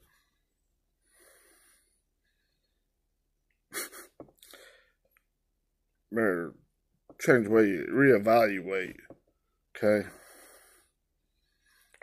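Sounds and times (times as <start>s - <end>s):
man breathing and sniffing: 0.0s - 2.9s, 3.8s - 5.1s, 10.1s - 12.0s.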